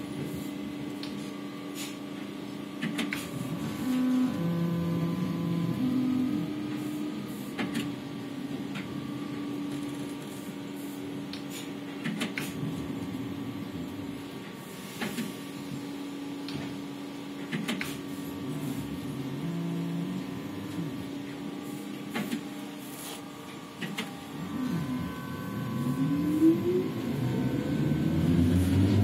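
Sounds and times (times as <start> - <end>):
electrical hum: 0.0 - 29.0
traction motor whine: 3.3 - 7.5, 18.4 - 22.5, 23.2 - 29.0.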